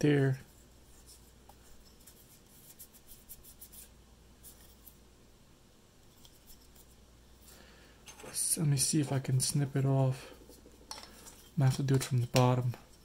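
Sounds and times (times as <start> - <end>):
low steady hum: 0.0 - 13.0
clicks and rubbing of plastic parts: 10.4 - 13.0.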